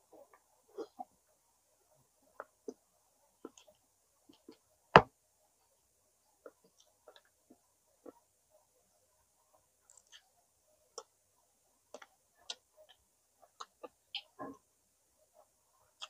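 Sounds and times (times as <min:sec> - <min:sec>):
wet chewing clicks and smacks: 0:09.9 - 0:10.2, 0:11.9 - 0:14.3.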